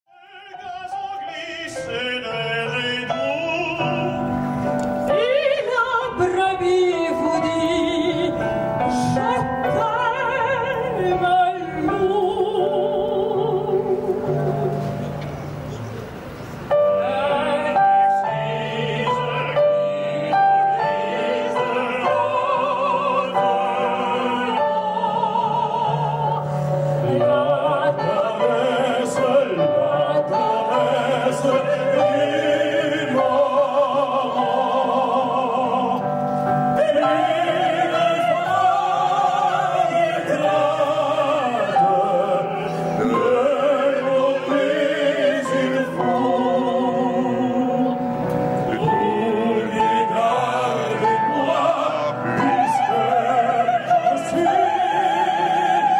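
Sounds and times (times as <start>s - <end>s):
instrumental accompaniment: 3.0s - 55.9s
woman singing operatically: 5.1s - 14.6s, 48.8s - 55.9s.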